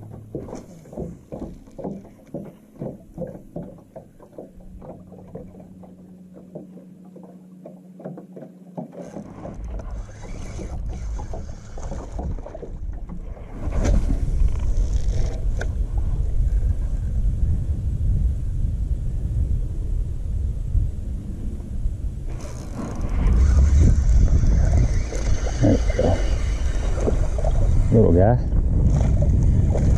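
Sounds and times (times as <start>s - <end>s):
waves slapping boat hull: 0.0s - 17.3s, 22.2s - 29.9s
steady low hum: 0.0s - 29.9s
wind buffeting microphone: 9.4s - 29.9s.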